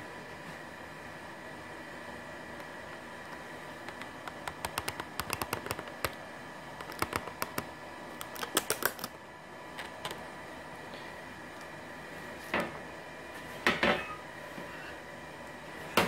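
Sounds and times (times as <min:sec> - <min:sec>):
faint steady hum: 0:00.0 - 0:16.0
sharp plastic clicks and taps: 0:03.8 - 0:06.2, 0:06.8 - 0:08.9.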